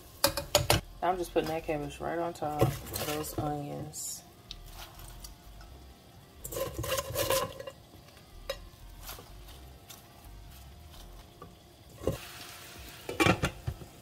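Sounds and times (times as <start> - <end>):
onions sizzling: 0.0 - 14.0
cabbage rustling into a pan: 4.6 - 5.3, 9.0 - 11.4.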